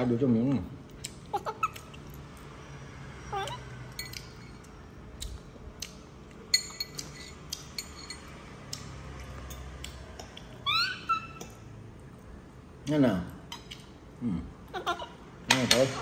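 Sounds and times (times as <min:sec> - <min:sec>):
spoon clinking against dishes: 0:03.9 - 0:04.7, 0:06.5 - 0:08.4.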